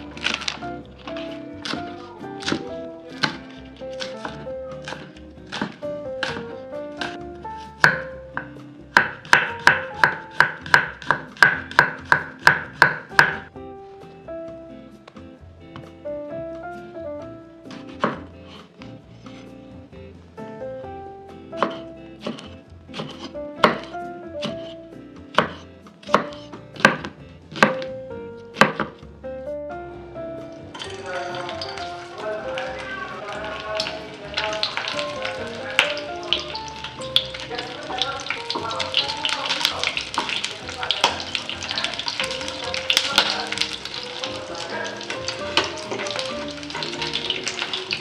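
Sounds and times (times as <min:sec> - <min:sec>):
soft background music: 0:00.0 - 0:48.0
knife chopping on wooden board: 0:01.1 - 0:07.2, 0:07.8 - 0:13.5, 0:17.7 - 0:18.6, 0:21.6 - 0:27.9, 0:28.5 - 0:29.0
knife knocking on wooden board: 0:21.6 - 0:24.7.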